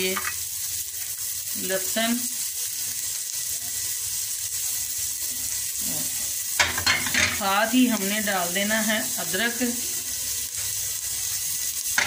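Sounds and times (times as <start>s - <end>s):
onion sizzling in oil: 0.0s - 12.0s.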